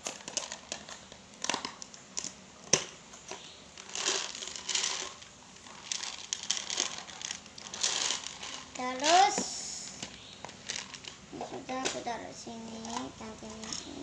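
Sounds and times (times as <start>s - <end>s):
plastic packaging crinkling: 0.0s - 2.9s, 3.7s - 11.3s.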